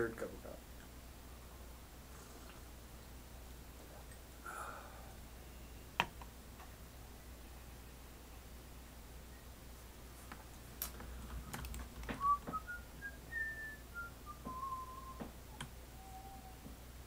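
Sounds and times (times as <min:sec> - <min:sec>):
keyboard keys clicking: 0:11.5 - 0:12.2
man whistling a tune: 0:12.2 - 0:15.3.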